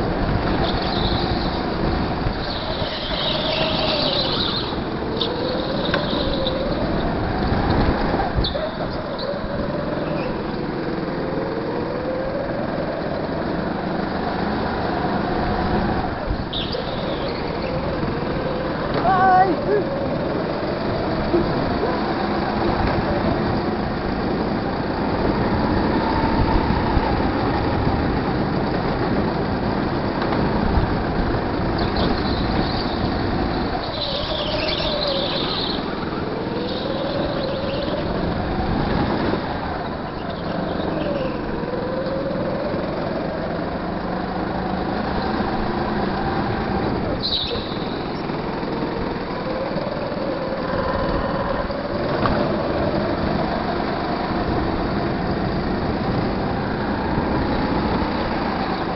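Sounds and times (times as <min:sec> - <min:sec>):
go-kart engine revving: 0:00.0 - 0:58.9
tyres squealing: 0:02.3 - 0:07.1, 0:31.8 - 0:39.1.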